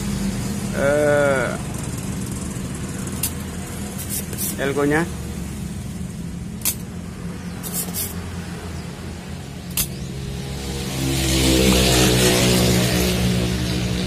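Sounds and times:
vehicle engine: 0:00.0 - 0:14.0
desoldering pump snapping: 0:03.2 - 0:04.6, 0:06.6 - 0:06.9, 0:09.7 - 0:10.0.

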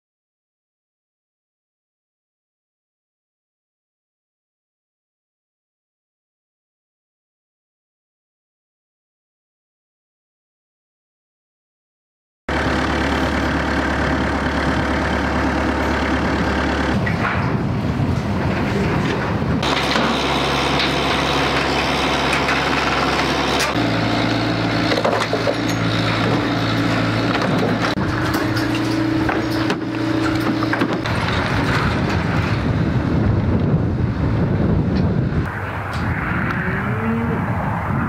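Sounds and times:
heavy machinery engines idling: 0:12.5 - 0:35.5
wind on microphone: 0:17.0 - 0:19.7, 0:31.0 - 0:38.0
debris knocking and clattering: 0:17.0 - 0:23.7, 0:24.8 - 0:32.9.

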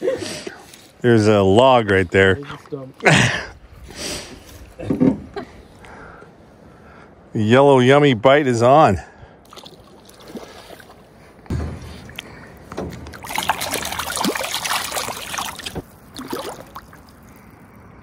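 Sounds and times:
water splashing: 0:09.5 - 0:11.1, 0:11.8 - 0:18.0
low thump: 0:11.5 - 0:13.2.

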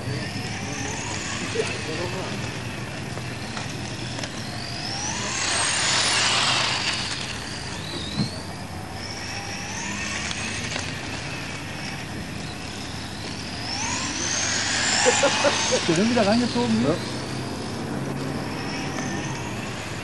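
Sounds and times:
model car engines whining: 0:00.0 - 0:20.0.

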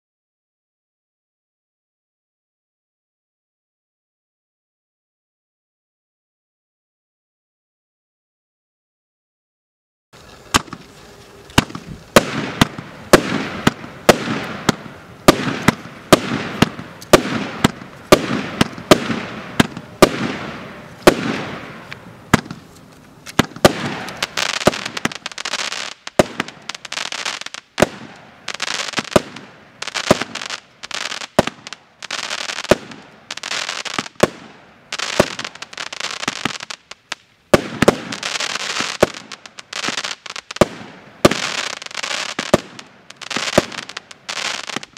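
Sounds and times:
firework launch reports: 0:10.2 - 0:26.9.

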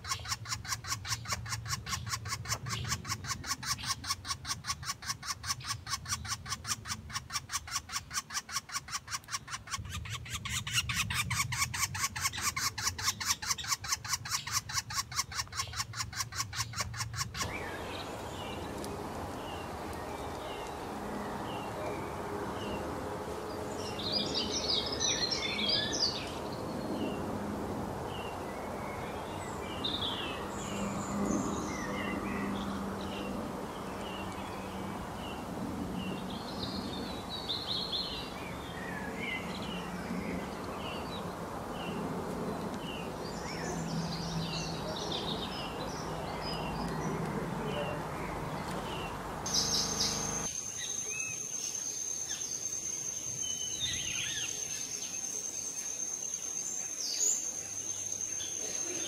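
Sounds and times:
woodpecker nestlings begging calls: 0:00.0 - 0:20.8, 0:47.8 - 0:51.5
birds chirping and trilling: 0:00.0 - 0:27.4, 0:28.0 - 0:59.0.

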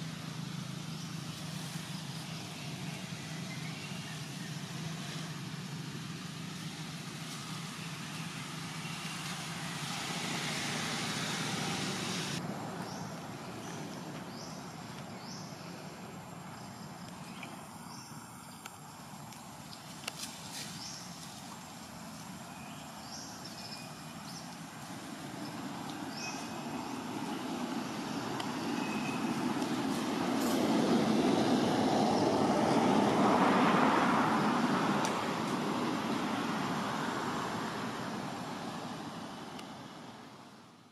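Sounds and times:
vehicle passing by: 0:00.0 - 0:15.8, 0:23.0 - 0:40.1.

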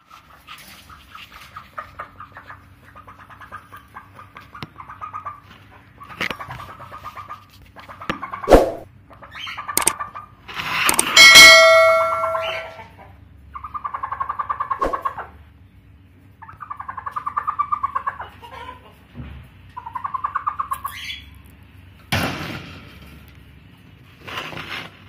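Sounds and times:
steady high tone: 0:11.2 - 0:12.8
hen trilling calls: 0:11.4 - 0:15.3.

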